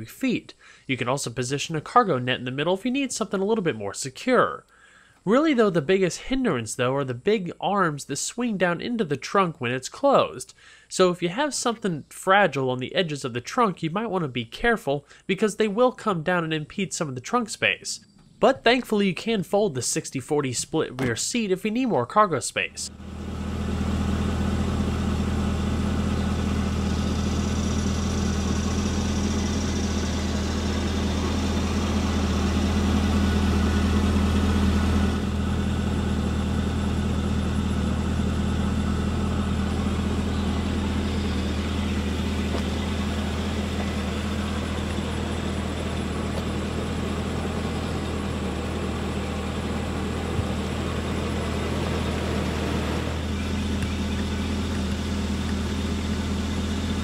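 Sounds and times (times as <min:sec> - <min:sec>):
car engine idling: 0:20.4 - 0:21.5, 0:22.6 - 0:57.0.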